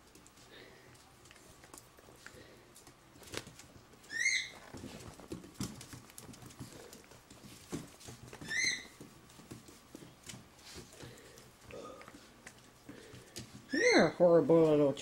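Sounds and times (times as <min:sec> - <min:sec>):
claws clicking on wooden floor: 0:01.1 - 0:13.7
puppy squeaking: 0:04.1 - 0:04.7, 0:08.4 - 0:09.0, 0:13.7 - 0:14.2.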